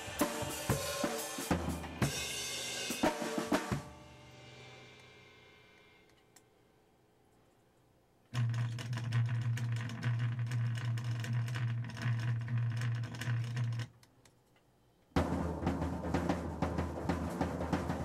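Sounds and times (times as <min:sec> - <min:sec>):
drum roll on a drum kit: 0:15.2 - 0:18.0.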